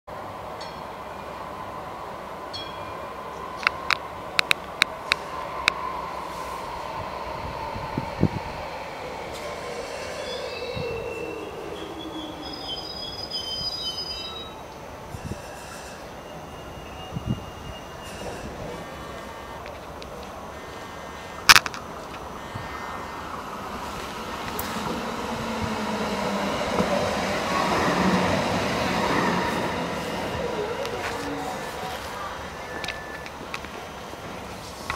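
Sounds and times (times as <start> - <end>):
tram whine falling in pitch: 5.2 - 19.6, 21.2 - 34.9
high wheel squeals: 9.1 - 19.1.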